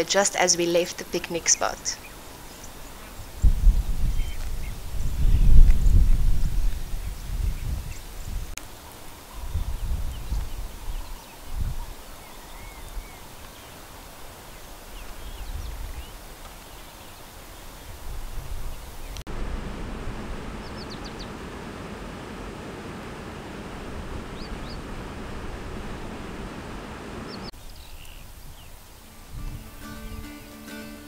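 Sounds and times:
wind thumps on microphone: 0:02.8 - 0:08.6, 0:09.3 - 0:12.0, 0:15.0 - 0:16.2, 0:17.9 - 0:30.2
bird chirps: 0:20.6 - 0:21.4.

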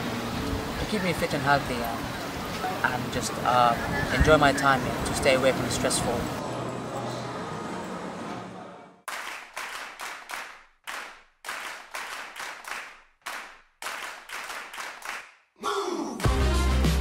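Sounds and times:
music with heavy bass beat: 0:16.2 - 0:17.0.

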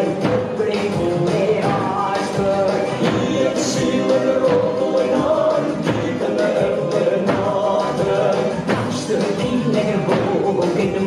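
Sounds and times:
folk singing: 0:00.0 - 0:11.0
large drums beaten with sticks: 0:00.0 - 0:11.0.

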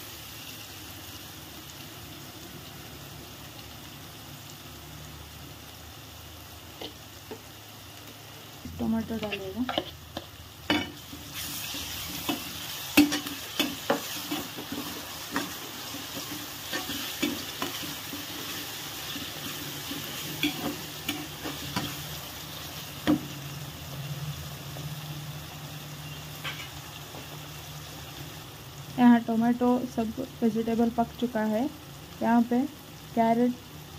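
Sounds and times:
vegetables sizzling in oil: 0:00.0 - 0:33.9
spatula scraping a pan: 0:09.1 - 0:22.1.

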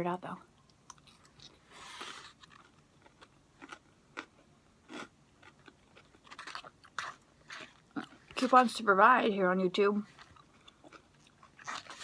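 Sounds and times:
chewing crunches: 0:00.8 - 0:08.5, 0:10.1 - 0:12.0.

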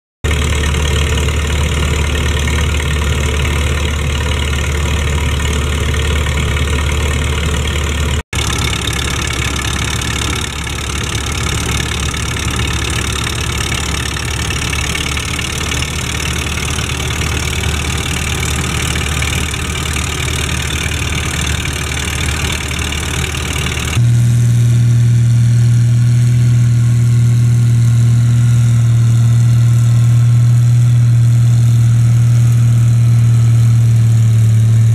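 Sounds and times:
tractor engine running: 0:00.2 - 0:34.9
fan and belt rushing: 0:00.3 - 0:24.1.

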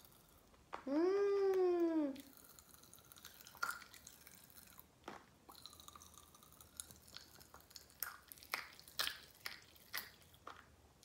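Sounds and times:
chewing a snack: 0:02.2 - 0:10.8
mouth clicks and crunches: 0:02.2 - 0:10.8.

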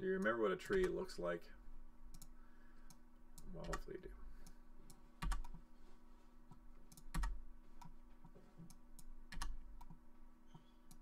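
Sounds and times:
faint steady hum: 0:00.0 - 0:11.0
computer mouse clicks: 0:02.1 - 0:05.6, 0:06.5 - 0:08.0, 0:08.6 - 0:11.0.

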